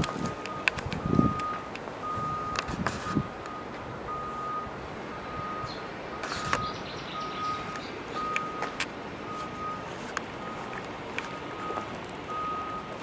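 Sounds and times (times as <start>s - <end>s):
sharp clicks and rustles: 0.0s - 3.6s, 6.2s - 6.7s
electronic warning beeps: 0.0s - 13.0s.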